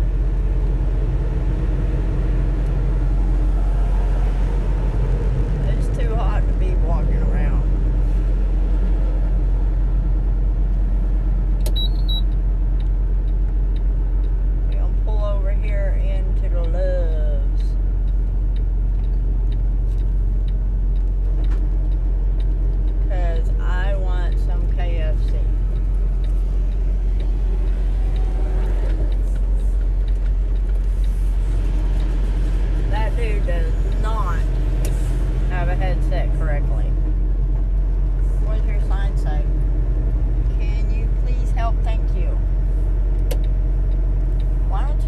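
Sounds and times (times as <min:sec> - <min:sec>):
car road and engine drone: 0:00.0 - 0:45.0
faint regular ticking: 0:09.6 - 0:45.0.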